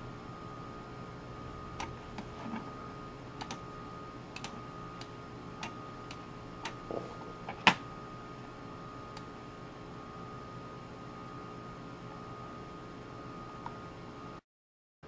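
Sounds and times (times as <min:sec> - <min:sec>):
computer mouse clicks: 0:03.4 - 0:03.6, 0:04.4 - 0:06.8.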